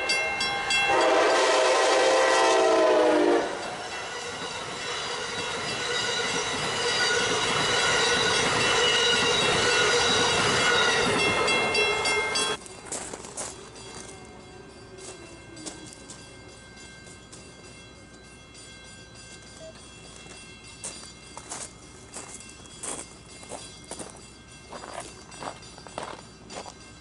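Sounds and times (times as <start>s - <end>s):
train rushing past: 0.0s - 12.6s
train horn: 0.2s - 11.1s.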